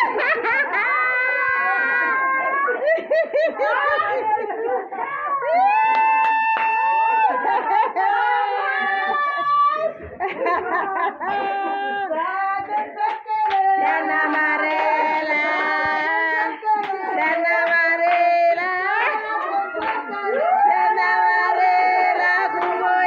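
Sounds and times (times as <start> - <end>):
hand clapping: 5.8 - 7.1, 12.6 - 18.3, 19.0 - 20.4, 22.5 - 22.9
women and children singing: 7.4 - 23.0.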